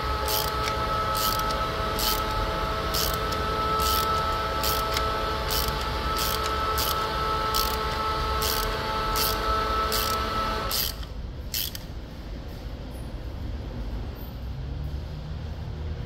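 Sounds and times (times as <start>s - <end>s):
steady tonal hum: 0.0s - 11.1s
hand ratchet clicking: 0.2s - 11.9s.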